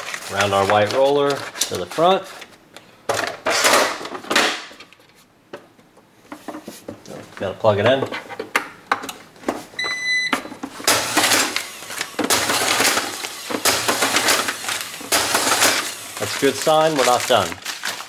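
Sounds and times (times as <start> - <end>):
tape dispenser beep: 9.8 - 17.5
tape feed motor running: 10.8 - 18.0.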